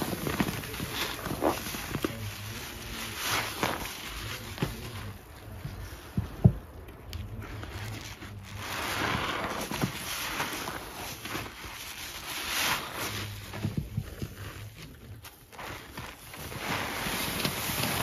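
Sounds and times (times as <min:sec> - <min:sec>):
wet sponge squelching with foam: 0:00.0 - 0:18.0.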